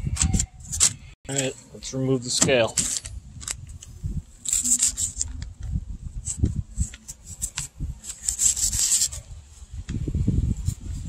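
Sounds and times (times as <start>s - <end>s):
knife scraping fish scales: 4.4s - 5.4s, 6.3s - 9.3s.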